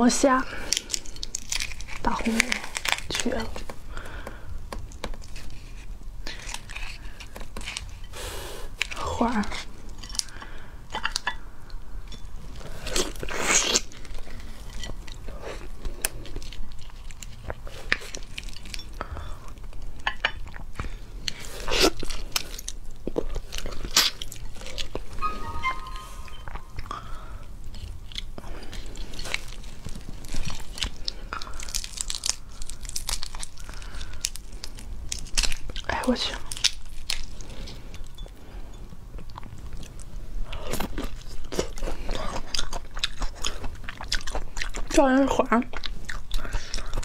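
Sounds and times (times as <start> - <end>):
shrimp shells crackling: 0.6 - 4.1, 27.8 - 37.7.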